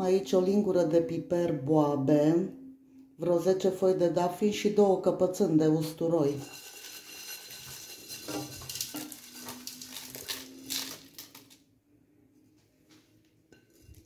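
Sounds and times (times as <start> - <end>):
spices pattering into a pot: 6.4 - 11.6.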